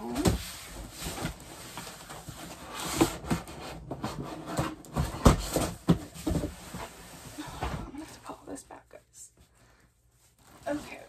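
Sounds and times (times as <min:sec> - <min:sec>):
rustling: 0:09.3 - 0:11.0.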